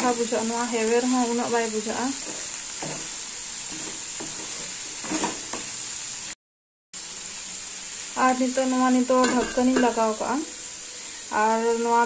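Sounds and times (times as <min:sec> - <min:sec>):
vegetables sizzling in a pan: 0:00.0 - 0:06.4, 0:07.0 - 0:12.0
wooden spatula scraping a pan: 0:01.0 - 0:05.8.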